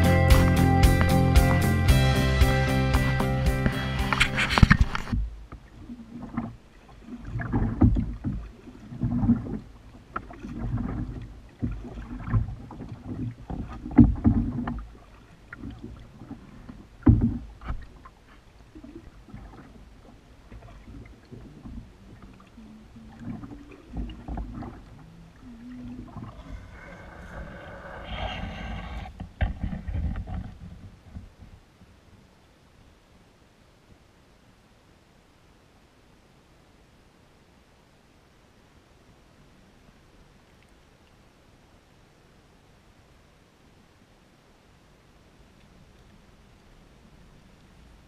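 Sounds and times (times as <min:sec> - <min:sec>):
paddle strokes splashing water: 0:02.9 - 0:32.0
paddle knocking against hull: 0:07.2 - 0:14.9, 0:15.5 - 0:18.1.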